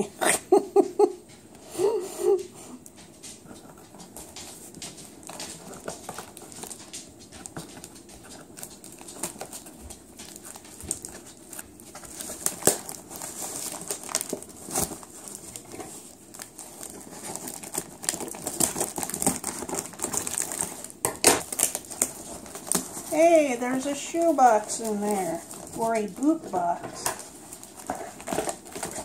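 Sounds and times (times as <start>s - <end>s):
cardboard and tape rustling: 2.3s - 29.0s
scissors cutting cardboard: 25.5s - 29.0s.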